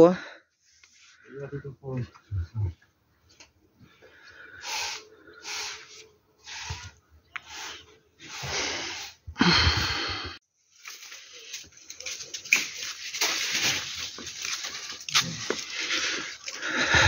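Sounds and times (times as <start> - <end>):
broom sweeping paving stones: 4.6 - 9.3, 10.6 - 16.5.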